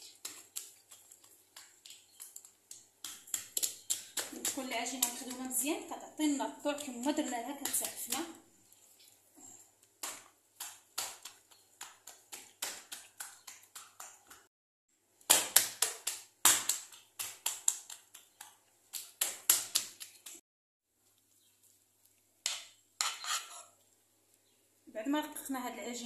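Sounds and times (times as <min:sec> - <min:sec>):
hands patting dough wet slaps: 0:00.0 - 0:05.9, 0:06.7 - 0:08.4, 0:09.0 - 0:14.5, 0:15.2 - 0:20.4.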